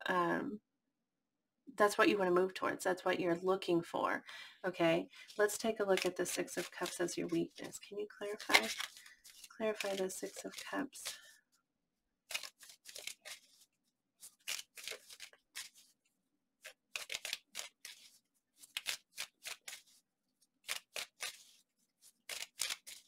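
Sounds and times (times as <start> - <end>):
cards being shuffled: 5.3 - 11.3, 12.3 - 16.0, 16.6 - 23.0.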